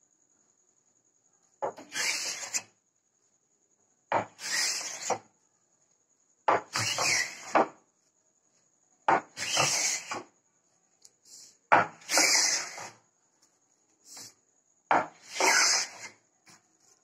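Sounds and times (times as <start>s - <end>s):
plane blade shaving wood: 1.9s - 2.6s, 15.2s - 16.1s.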